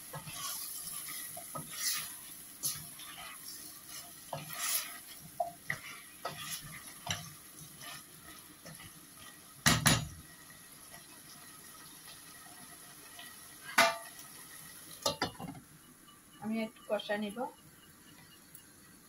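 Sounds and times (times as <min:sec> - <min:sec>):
wooden spoon stirring in a pot: 0:00.0 - 0:13.9
faint sizzle: 0:00.0 - 0:19.0
spoon knocking against pot: 0:09.6 - 0:10.1.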